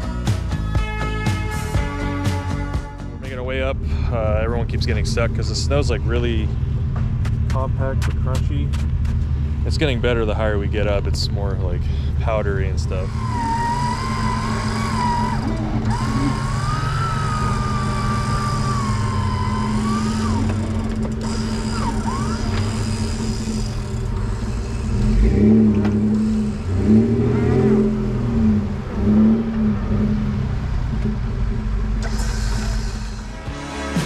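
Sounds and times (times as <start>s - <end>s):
trucks idling: 0.0s - 34.0s
wavering whine: 0.0s - 34.0s
winch cable surging pulses: 12.7s - 25.2s.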